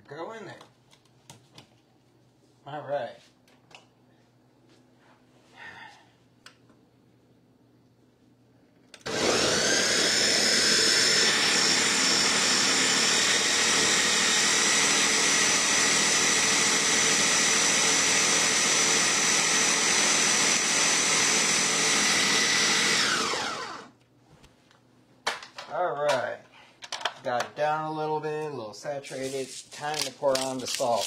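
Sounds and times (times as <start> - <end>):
blender whining: 9.0 - 24.0.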